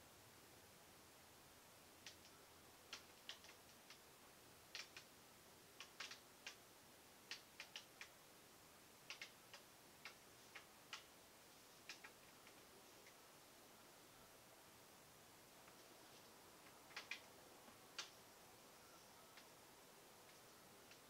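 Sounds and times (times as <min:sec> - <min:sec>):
faint light clicks and ticks: 0:02.0 - 0:08.2, 0:09.0 - 0:13.3, 0:15.6 - 0:19.6, 0:20.2 - 0:21.0.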